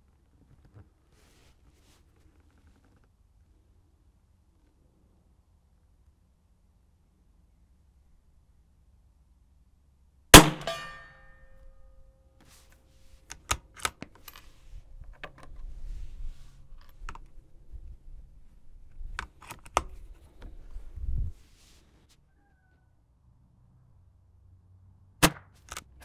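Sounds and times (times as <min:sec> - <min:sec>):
rifle shot: 0:10.4 - 0:11.1.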